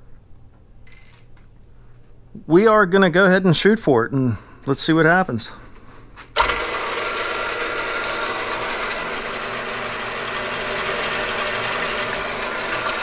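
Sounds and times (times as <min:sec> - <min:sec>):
drive motor hum: 0:06.4 - 0:13.0
milling machine spindle running: 0:06.4 - 0:13.0.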